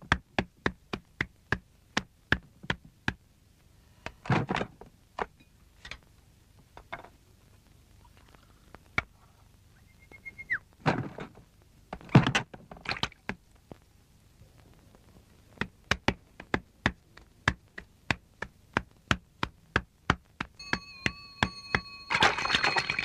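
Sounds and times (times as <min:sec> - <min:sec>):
brief high tone: 0:20.6 - 0:23.0
steady high tone with overtones: 0:20.6 - 0:23.0.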